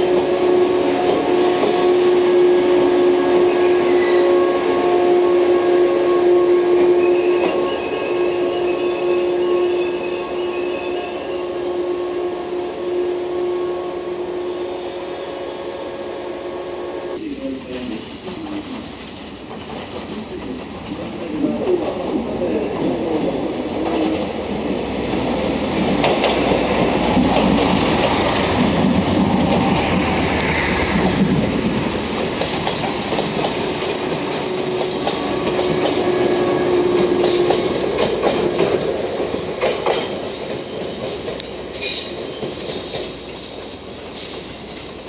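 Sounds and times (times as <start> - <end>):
train wheel squeals: 1.4 - 4.4, 6.7 - 16.2, 32.6 - 33.3, 33.9 - 38.1, 39.6 - 44.8.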